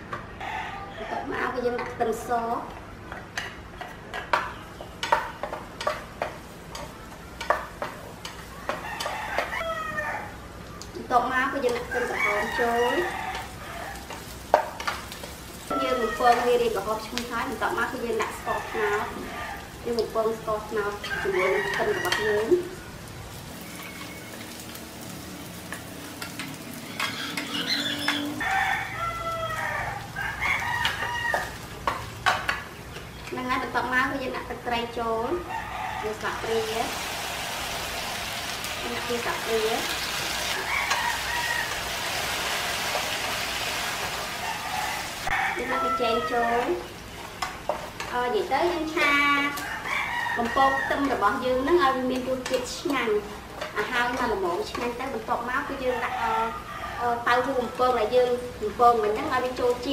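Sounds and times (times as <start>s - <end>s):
rooster crowing: 0.4s - 1.3s, 8.5s - 10.6s, 11.8s - 14.1s, 15.7s - 16.5s, 18.3s - 19.8s, 21.0s - 23.0s, 27.5s - 31.6s, 35.4s - 37.8s, 40.5s - 42.5s, 44.0s - 46.8s, 49.3s - 51.4s, 55.7s - 57.3s
light sizzle: 1.3s - 59.9s
wooden spatula scraping pot: 26.8s - 28.5s.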